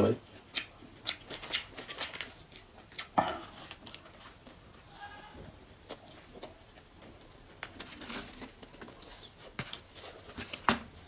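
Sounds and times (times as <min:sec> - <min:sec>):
open-mouth chewing: 0:00.4 - 0:04.4.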